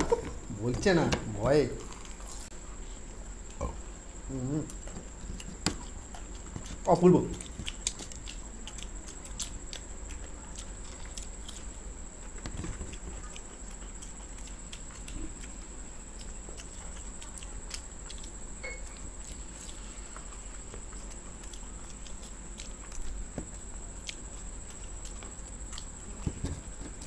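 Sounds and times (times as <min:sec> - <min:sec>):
faint high whine: 0:00.0 - 0:09.5, 0:15.2 - 0:27.0
people chewing crunchy food: 0:00.0 - 0:27.0.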